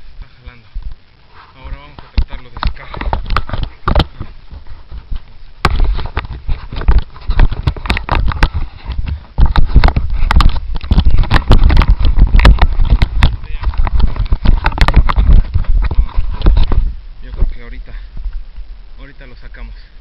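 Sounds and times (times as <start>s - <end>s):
heavy rumble: 0.0s - 20.0s
wind buffeting microphone: 1.8s - 19.7s
knocks and thumps: 2.0s - 17.5s.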